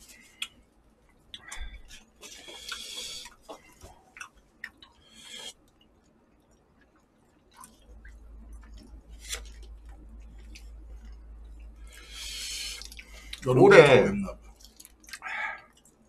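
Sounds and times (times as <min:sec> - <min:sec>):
soft chewing: 0:00.0 - 0:13.5, 0:14.4 - 0:16.0.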